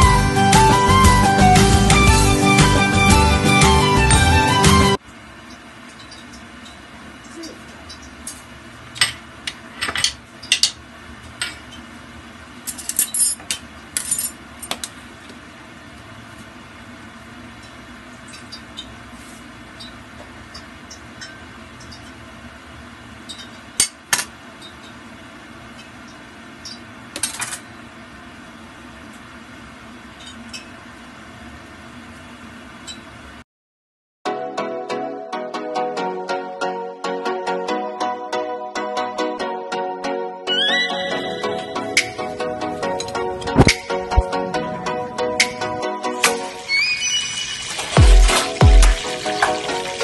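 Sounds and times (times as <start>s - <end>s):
kitchen room noise: 4.9s - 33.4s, 41.4s - 50.0s
utensils and dishes clinking: 12.6s - 14.4s.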